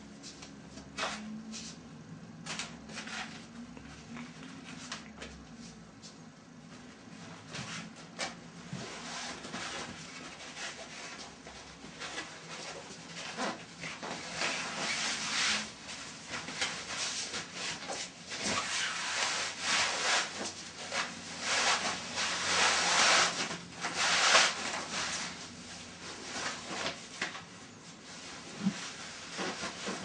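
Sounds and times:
swimsuit fabric rustling: 6.7s - 30.0s.

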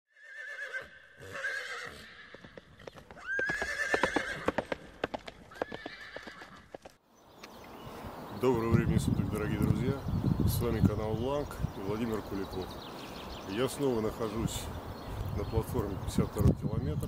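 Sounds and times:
horse whinnying: 0.1s - 4.8s, 5.5s - 6.8s
galloping hooves: 1.9s - 7.0s.

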